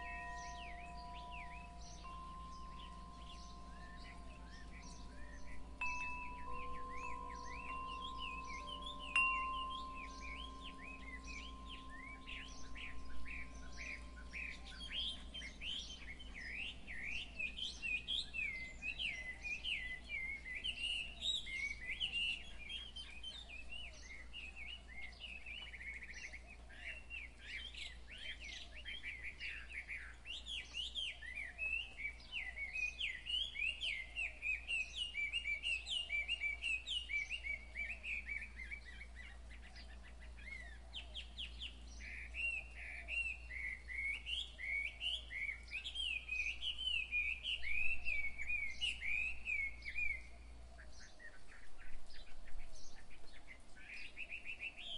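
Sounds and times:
chime tone: 0:00.0 - 0:16.4
songbirds chirping: 0:00.0 - 0:54.9.

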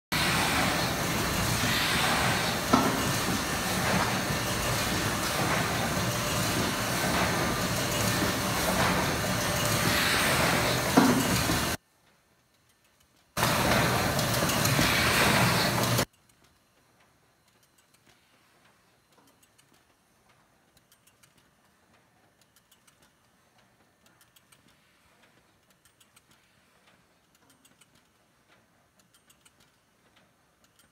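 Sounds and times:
machine running: 0:00.1 - 0:11.8, 0:13.4 - 0:16.1
faint irregular clicks: 0:12.0 - 0:13.4, 0:16.0 - 0:30.9.

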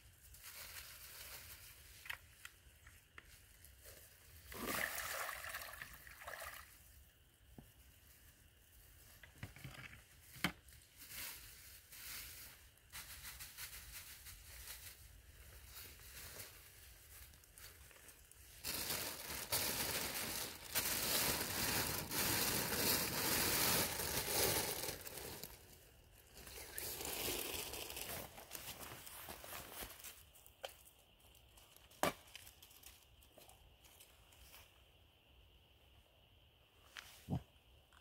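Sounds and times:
plastic bags crinkling: 0:15.6 - 0:30.0.

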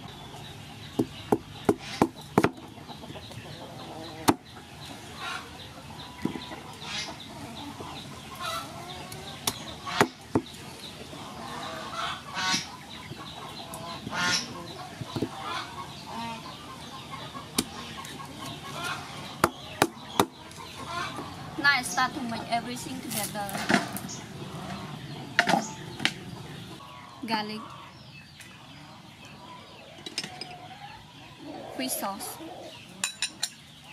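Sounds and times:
chickens clucking: 0:00.0 - 0:33.9.

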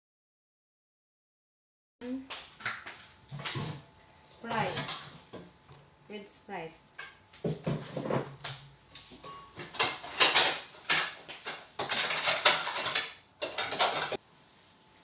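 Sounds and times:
dishes clattering: 0:04.5 - 0:05.6, 0:07.0 - 0:14.2.

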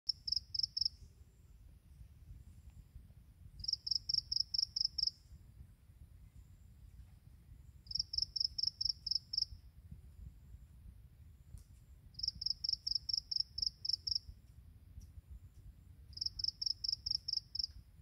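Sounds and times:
insect chirping: 0:00.1 - 0:01.1, 0:03.6 - 0:05.3, 0:07.7 - 0:09.7, 0:12.1 - 0:14.4, 0:16.1 - 0:17.9
faint low rumble: 0:00.1 - 0:18.0.

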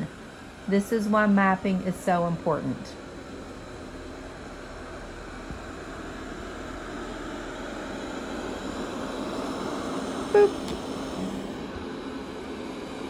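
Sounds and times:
robot vacuum motor hum: 0:09.2 - 0:11.8.

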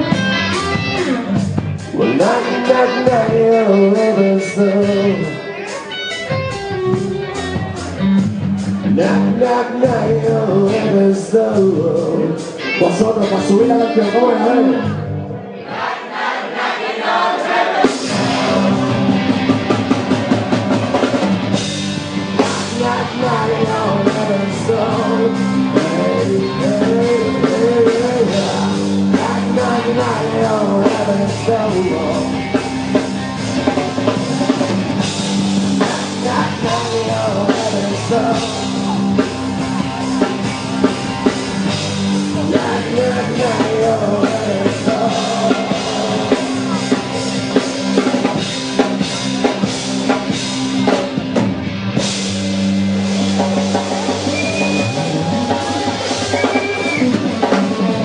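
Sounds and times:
drum kit beat: 0:00.0 - 0:13.8, 0:17.4 - 0:58.0
electric instruments: 0:00.0 - 0:16.0, 0:17.0 - 0:58.0
person singing: 0:01.9 - 0:06.2, 0:08.9 - 0:15.2, 0:17.8 - 0:21.1, 0:22.3 - 0:32.6, 0:35.6 - 0:41.4, 0:42.0 - 0:48.1, 0:53.8 - 0:58.0.

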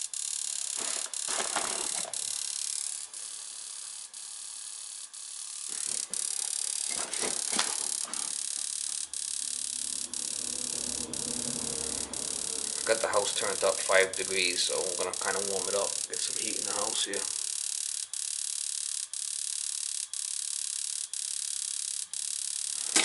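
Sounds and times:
low hum: 0:08.6 - 0:14.8.

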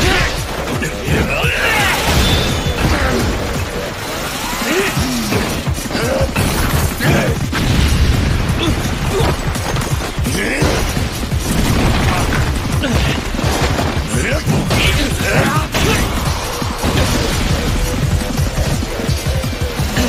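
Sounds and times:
dramatic music score: 0:00.0 - 0:20.0
crashes and booms: 0:05.3 - 0:19.2.

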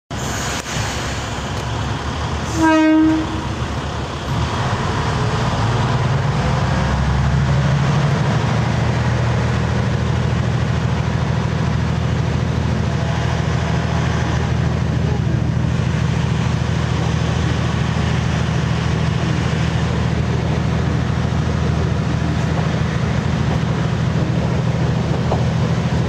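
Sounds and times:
diesel railcar engine hum: 0:00.1 - 0:26.0
train horn toot: 0:02.5 - 0:03.6.

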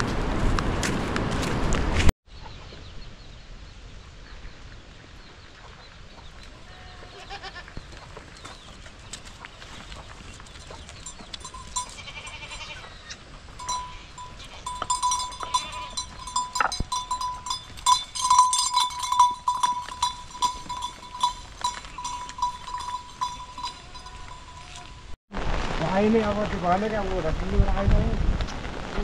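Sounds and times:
goats bleating: 0:06.6 - 0:07.7, 0:11.8 - 0:12.9, 0:13.6 - 0:16.4, 0:19.0 - 0:25.0
goat bells clanking: 0:10.3 - 0:12.8, 0:13.6 - 0:25.2.

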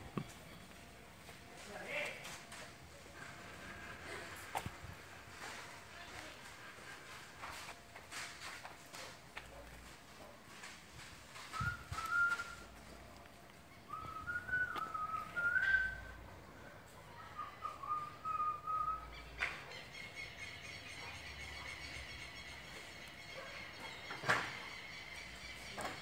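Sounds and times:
person whistling a tune: 0:11.6 - 0:12.6, 0:13.9 - 0:16.0.

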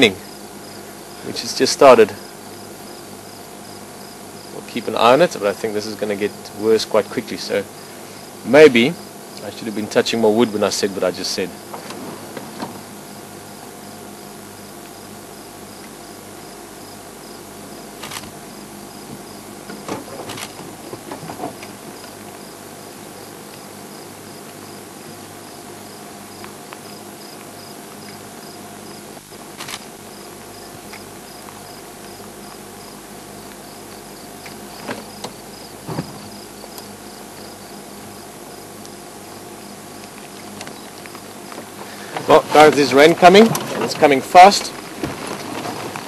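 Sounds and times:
crickets chirping: 0:00.0 - 0:46.0.

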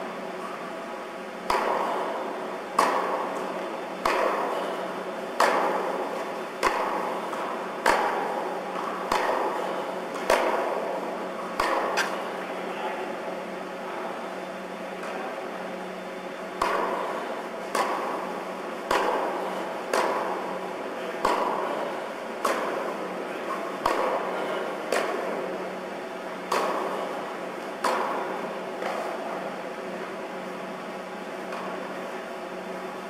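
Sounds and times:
steady low hum: 0:00.0 - 0:33.0
tennis ball hit with racket: 0:05.4 - 0:10.8, 0:11.5 - 0:12.2, 0:17.7 - 0:20.4, 0:23.8 - 0:24.3.

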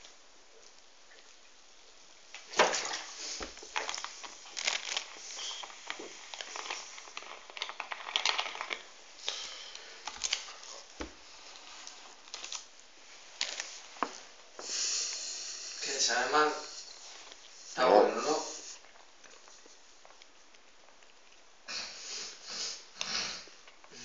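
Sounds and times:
plastic bottle crinkling: 0:02.3 - 0:12.8, 0:13.4 - 0:14.1.

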